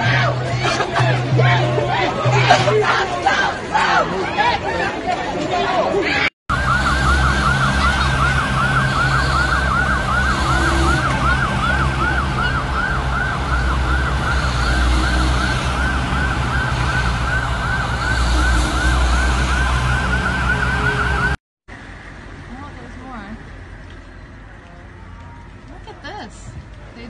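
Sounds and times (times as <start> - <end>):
truck engines rumbling: 0.0 - 27.0
emergency siren yelping: 6.5 - 21.4.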